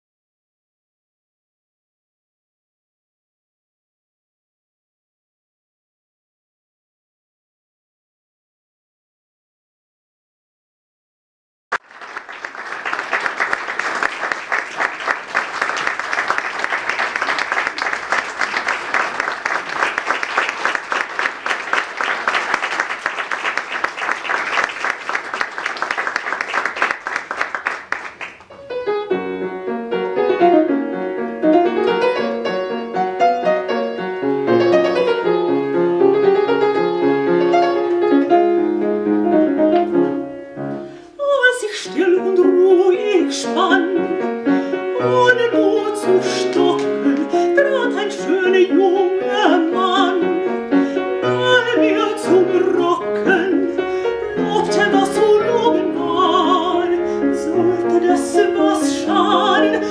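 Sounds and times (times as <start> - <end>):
audience applauding: 11.7 - 28.6
fortepiano playing solo: 28.5 - 41.0, 42.0 - 59.9.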